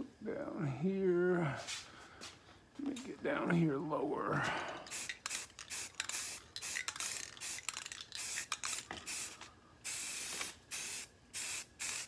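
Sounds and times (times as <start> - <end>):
aerosol spray can hissing: 4.9 - 12.0.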